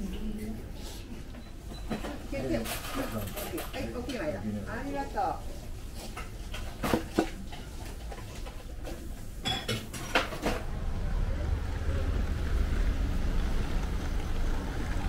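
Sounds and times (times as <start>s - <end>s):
ceramic dishes clinking on table: 9.4s - 10.0s
street traffic rumble: 9.9s - 15.0s.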